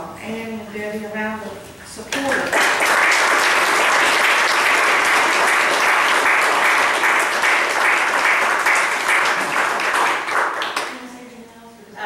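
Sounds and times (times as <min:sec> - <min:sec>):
crowd applauding: 0:02.2 - 0:11.0.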